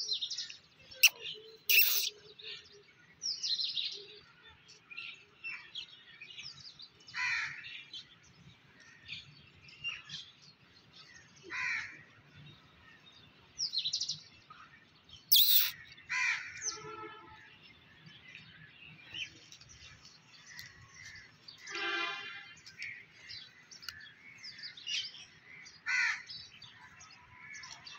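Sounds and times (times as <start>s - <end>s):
birds chirping: 0.3s - 2.3s, 15.2s - 16.1s
harsh bird calls: 1.0s - 2.2s, 15.3s - 16.8s.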